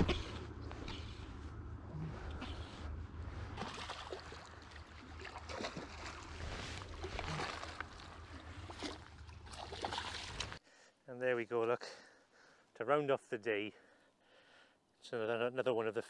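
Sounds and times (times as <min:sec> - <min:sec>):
low rumble: 0:00.0 - 0:09.4
fish splashing in water: 0:03.5 - 0:10.6.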